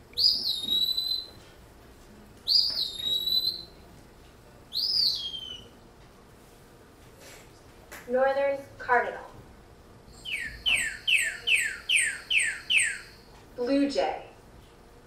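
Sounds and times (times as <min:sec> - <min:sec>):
bird whistles through speaker: 0:00.2 - 0:01.4, 0:02.5 - 0:03.8, 0:04.7 - 0:05.7, 0:10.2 - 0:13.3.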